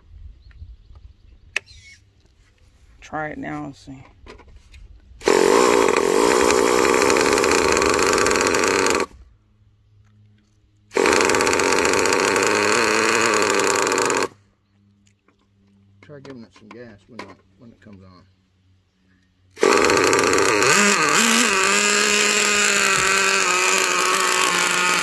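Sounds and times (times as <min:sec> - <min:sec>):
small engine cranking: 0:05.2 - 0:09.2, 0:10.9 - 0:14.4, 0:19.6 - 0:25.0.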